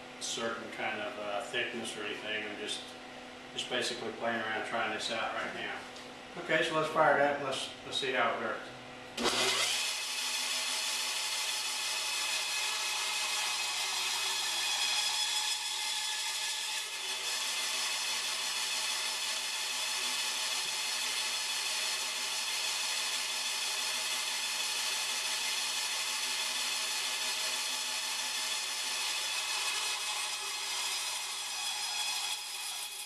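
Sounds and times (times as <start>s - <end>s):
bandsaw motor hum: 9.2s - 33.0s
bandsaw sawing through log: 9.2s - 33.0s.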